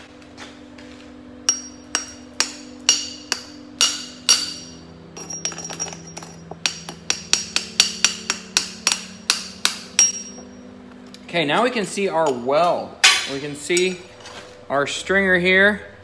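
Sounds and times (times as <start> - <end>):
hammer striking steel plate: 1.5 - 10.5.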